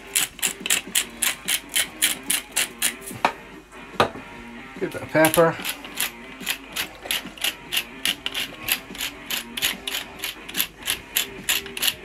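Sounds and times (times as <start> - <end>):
pepper mill ratcheting clicks: 0.0 - 3.0, 5.2 - 12.0.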